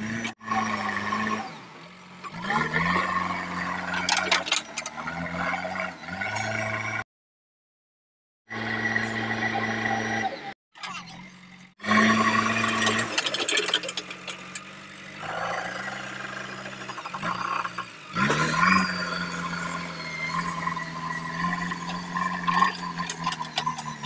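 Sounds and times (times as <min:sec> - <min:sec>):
metallic clanks and rattles: 0:03.9 - 0:05.0, 0:12.8 - 0:15.0, 0:21.8 - 0:24.0
diesel engine running: 0:08.5 - 0:24.0.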